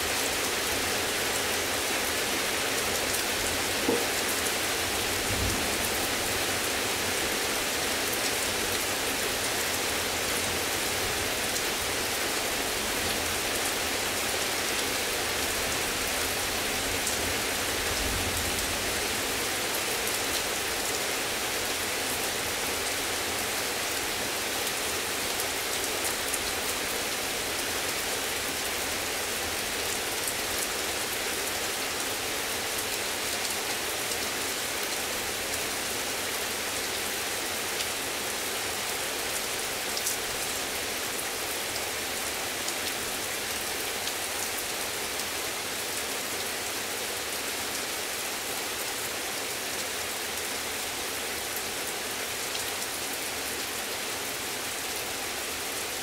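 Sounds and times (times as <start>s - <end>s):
heavy rain hissing: 0.0s - 46.2s
raindrops ticking on surfaces: 2.0s - 11.9s.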